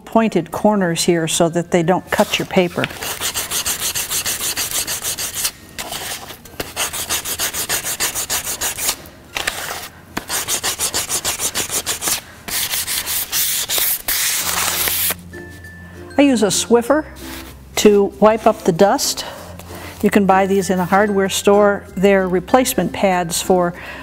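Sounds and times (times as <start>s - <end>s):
sandpaper rubbing wood: 2.2s - 15.2s.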